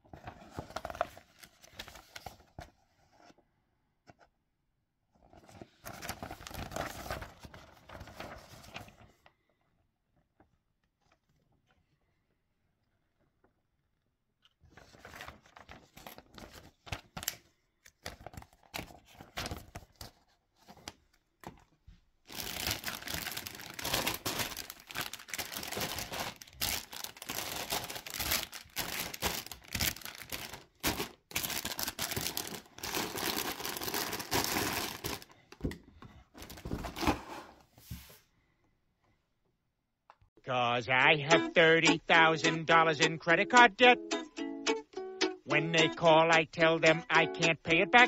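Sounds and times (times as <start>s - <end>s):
paper rustling: 0.0s - 3.4s, 5.2s - 9.6s, 14.6s - 35.8s, 36.4s - 38.2s
plastic bags crinkling: 22.3s - 35.4s.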